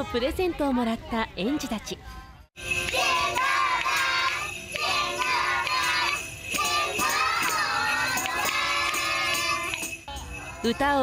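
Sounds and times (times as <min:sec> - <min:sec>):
jingle bells shaking: 0:02.6 - 0:11.0
children singing: 0:02.9 - 0:09.9.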